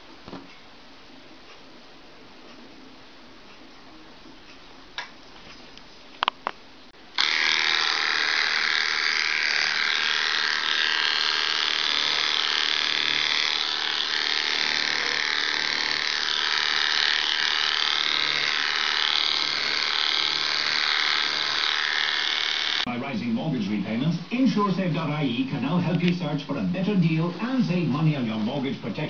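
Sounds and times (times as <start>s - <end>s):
electric clippers running: 7.1s - 22.9s.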